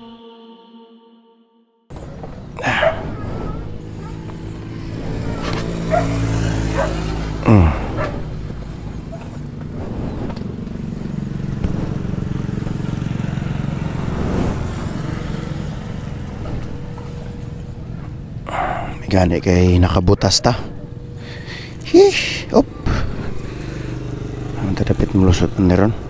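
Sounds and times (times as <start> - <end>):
motorcycle engine running: 1.9 - 26.0
dog barking: 2.6 - 4.5, 5.8 - 7.1, 7.9 - 8.2, 8.8 - 9.4.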